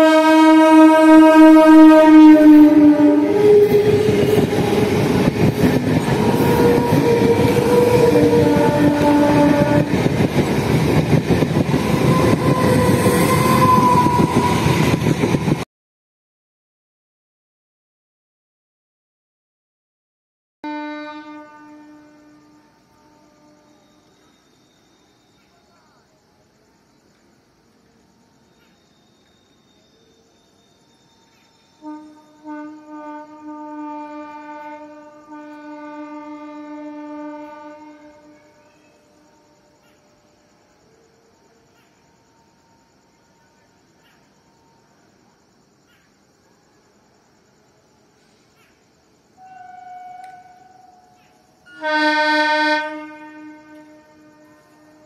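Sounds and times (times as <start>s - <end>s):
train wheels rumbling on rails: 1.0s - 15.6s, 22.8s - 51.9s.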